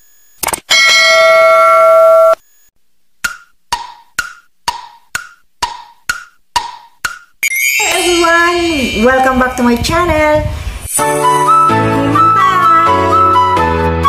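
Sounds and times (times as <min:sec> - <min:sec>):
bell-like notification chime: 0:07.4 - 0:09.7.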